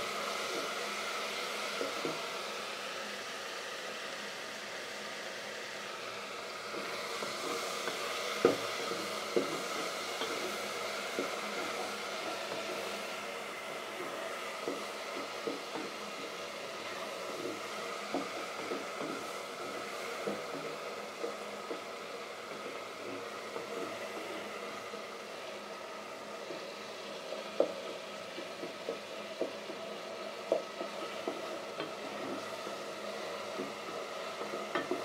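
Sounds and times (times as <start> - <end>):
tomatoes cooking hiss: 0.0 - 35.0.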